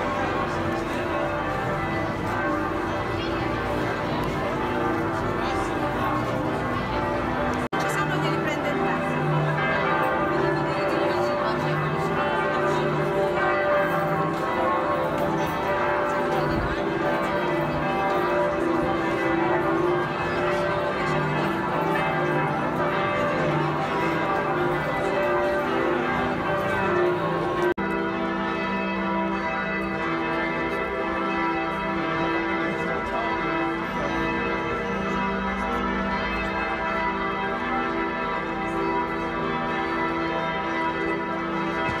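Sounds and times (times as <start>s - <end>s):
church bells pealing: 0.0s - 42.0s.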